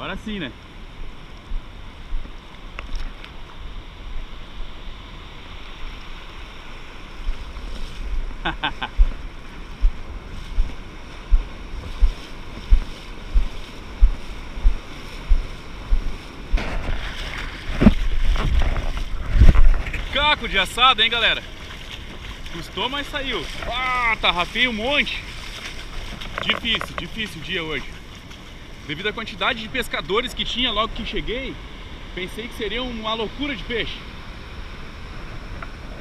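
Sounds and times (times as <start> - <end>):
surf washing around legs: 0.0 - 36.0
wind on microphone: 0.8 - 22.5.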